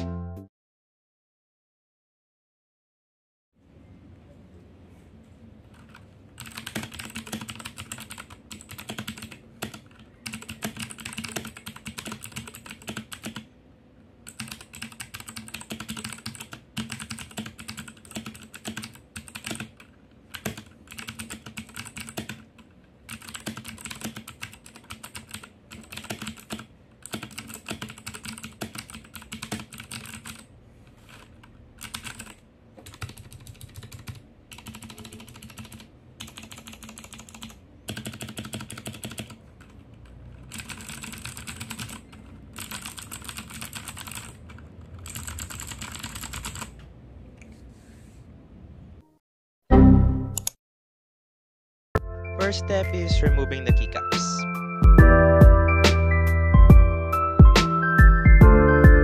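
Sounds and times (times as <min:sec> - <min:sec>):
mechanical keyboard typing: 0:05.7 - 0:13.5, 0:14.2 - 0:46.8.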